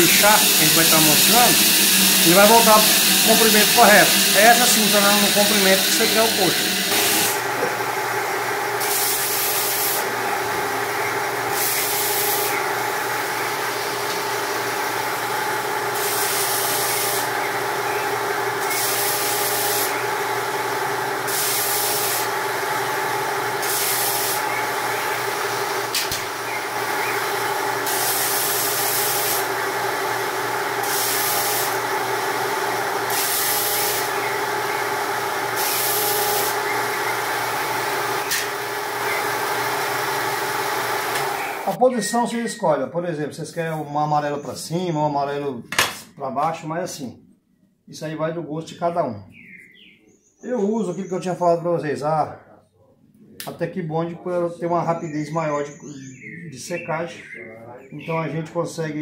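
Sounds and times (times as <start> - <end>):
saw cutting wood strips: 0.0 - 7.8, 8.8 - 10.2, 11.4 - 12.6, 15.9 - 17.3, 17.9 - 20.1, 21.2 - 22.4, 23.5 - 29.6, 30.8 - 31.8, 33.0 - 34.9, 35.5 - 41.8
bench power saw running: 0.0 - 41.8.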